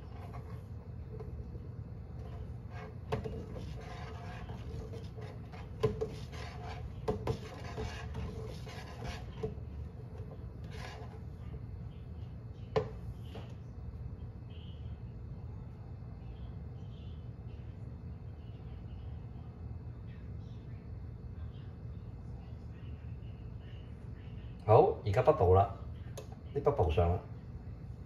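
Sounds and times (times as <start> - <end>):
metal ladle scraping a pot: 2.2 - 9.6, 10.6 - 11.2.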